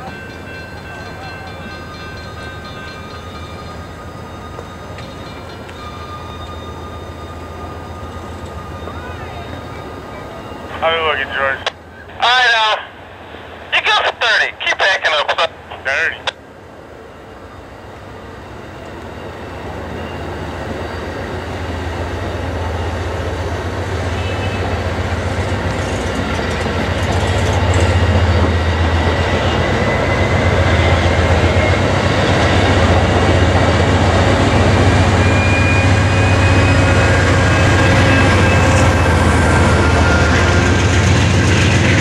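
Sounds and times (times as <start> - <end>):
train wheels rumbling on rails: 16.2 - 42.0
high wheel squeal: 34.7 - 41.1.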